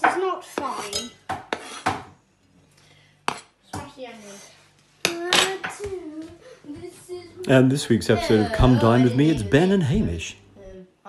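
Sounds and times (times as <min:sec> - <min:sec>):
voices talking: 0:05.6 - 0:10.7.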